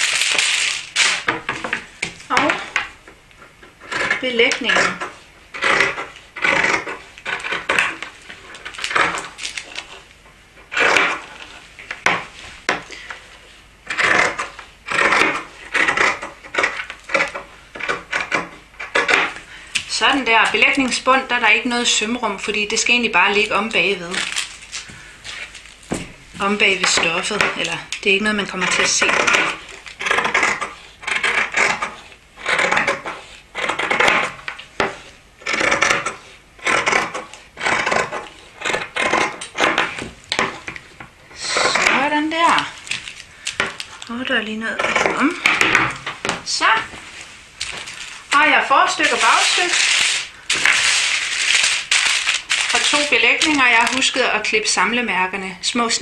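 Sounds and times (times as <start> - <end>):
shears snipping fabric: 3.8 - 10.0, 13.9 - 25.6, 26.4 - 40.8, 41.4 - 54.3.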